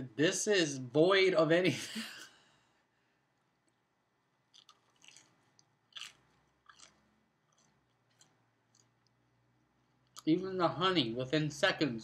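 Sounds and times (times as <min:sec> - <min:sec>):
soft chewing: 0:03.3 - 0:10.3.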